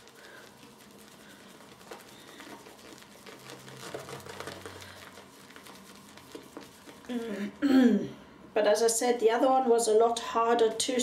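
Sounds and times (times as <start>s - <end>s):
shaving brush lathering soap: 0.0s - 7.5s.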